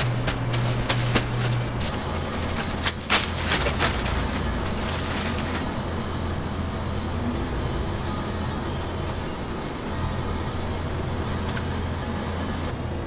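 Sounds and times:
plastic bag rustling and crinkling: 0:00.0 - 0:05.8
steady low hum: 0:00.0 - 0:13.0.

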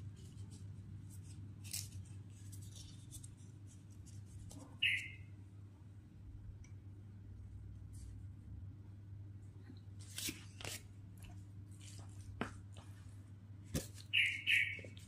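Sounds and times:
rustles and clicks of food preparation: 0:00.0 - 0:05.2, 0:09.4 - 0:15.0
steady low hum: 0:00.0 - 0:15.0.

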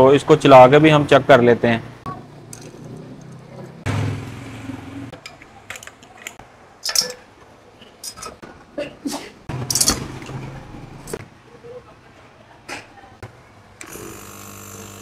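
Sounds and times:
metallic clinks and knocks: 0:02.5 - 0:03.5, 0:05.2 - 0:08.4
refrigerator compressor motor humming: 0:13.8 - 0:15.0.

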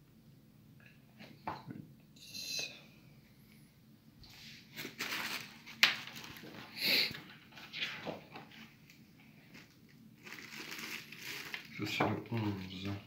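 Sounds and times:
packaging rustling and knocking: 0:04.8 - 0:06.7.

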